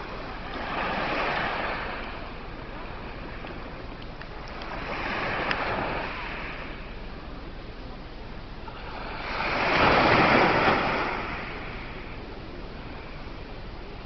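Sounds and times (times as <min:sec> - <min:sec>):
waves washing up pebble beach: 0:00.5 - 0:02.2, 0:08.9 - 0:12.0.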